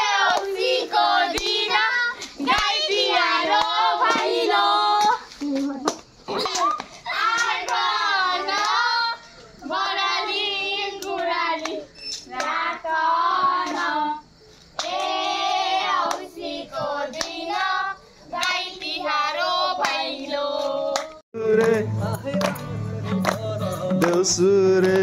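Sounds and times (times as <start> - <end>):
children singing together: 0.0 - 5.2
hand claps: 16.0 - 16.3, 20.6 - 25.0.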